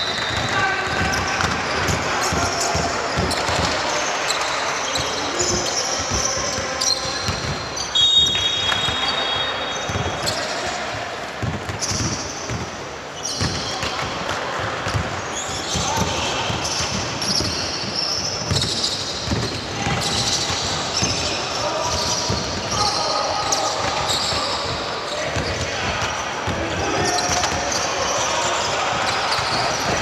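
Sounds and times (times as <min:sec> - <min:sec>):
players' voices: 0:00.0 - 0:30.0
basketball bouncing on court: 0:00.1 - 0:09.2, 0:11.4 - 0:30.0
short high shoe squeaks: 0:16.6 - 0:20.4.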